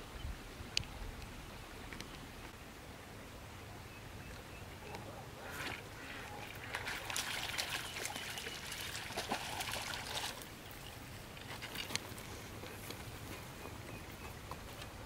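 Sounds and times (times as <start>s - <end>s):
fish splashing in water: 5.7s - 10.9s.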